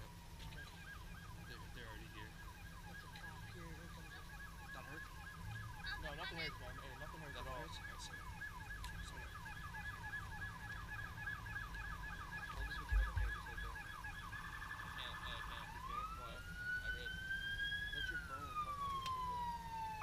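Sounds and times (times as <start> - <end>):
siren yelping: 0.0 - 20.0
low thump: 12.8 - 13.5.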